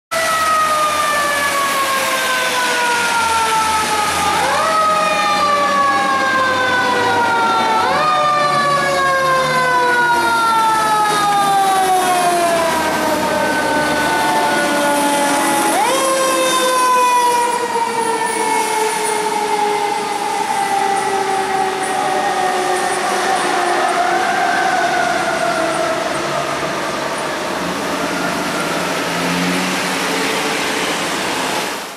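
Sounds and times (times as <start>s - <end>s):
tyres hissing on wet road: 0.2s - 5.4s, 22.7s - 31.9s
mechanical siren wailing: 0.2s - 29.4s.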